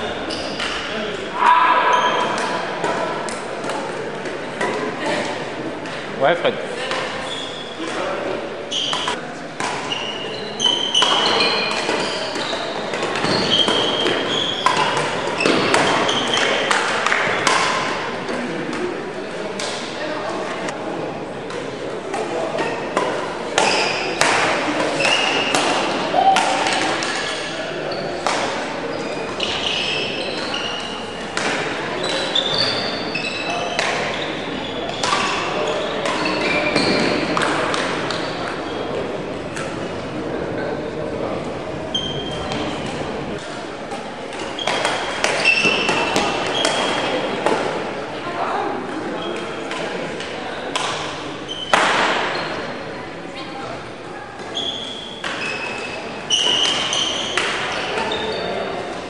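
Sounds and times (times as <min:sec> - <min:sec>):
shoes squeaking on hall floor: 0:00.0 - 0:06.1, 0:06.8 - 0:20.8, 0:21.5 - 0:40.0, 0:40.6 - 0:59.0
murmur of voices: 0:00.0 - 0:59.0
racket striking shuttlecock: 0:35.0 - 0:38.6.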